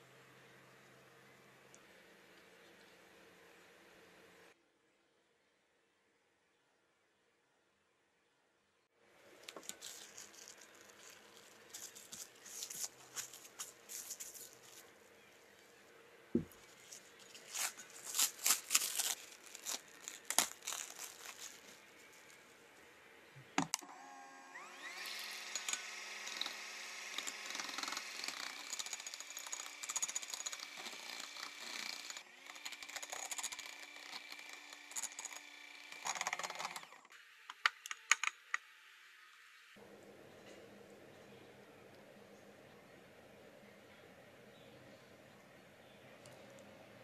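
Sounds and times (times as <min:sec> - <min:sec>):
cling film crinkling: 0:09.3 - 0:15.0, 0:16.5 - 0:22.5.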